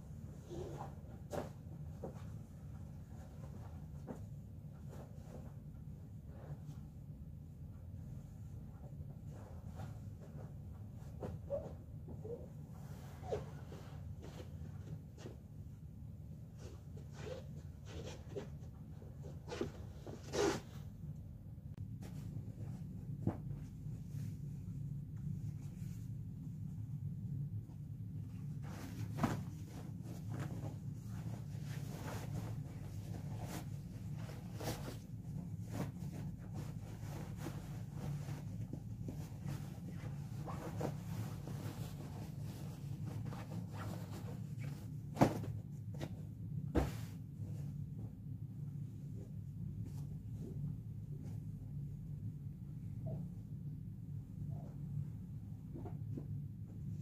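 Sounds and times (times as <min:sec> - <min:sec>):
steady low hum: 0:00.0 - 0:57.0
bed linen rustling: 0:21.7 - 0:52.2.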